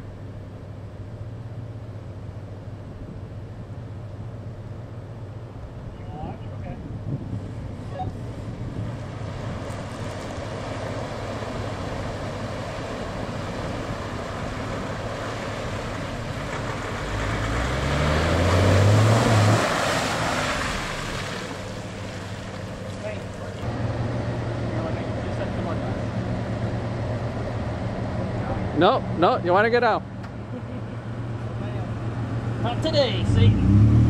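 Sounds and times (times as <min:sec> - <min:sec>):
churning water: 0:08.7 - 0:23.7
water splashing: 0:08.9 - 0:23.6
engine revving: 0:16.4 - 0:22.0, 0:31.7 - 0:34.0.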